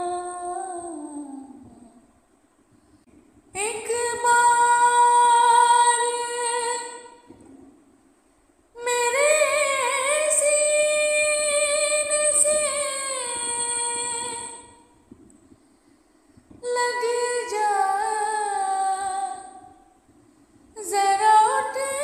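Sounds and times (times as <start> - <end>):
woman singing a lament: 0.0 - 2.0, 8.8 - 14.8, 16.6 - 19.8, 20.8 - 22.0.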